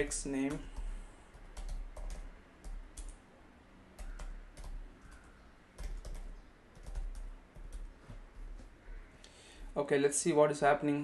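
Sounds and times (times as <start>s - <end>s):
keyboard keystrokes clicking: 4.0s - 8.7s.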